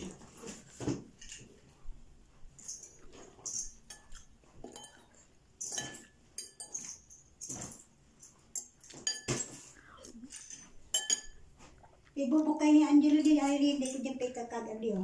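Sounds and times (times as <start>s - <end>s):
cutlery clinking on ceramic bowl: 2.6s - 11.5s, 13.1s - 14.2s.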